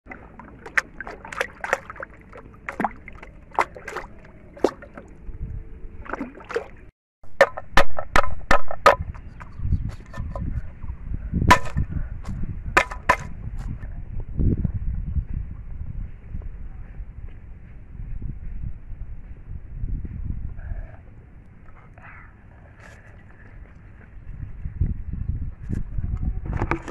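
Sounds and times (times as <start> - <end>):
light water splashing: 0.1 - 5.2, 6.0 - 6.9.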